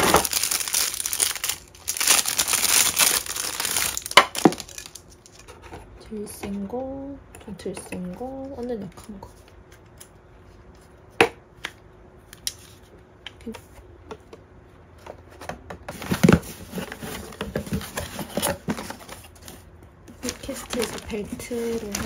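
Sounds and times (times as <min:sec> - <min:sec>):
wrapping rustling: 0:00.0 - 0:05.5, 0:20.2 - 0:22.0.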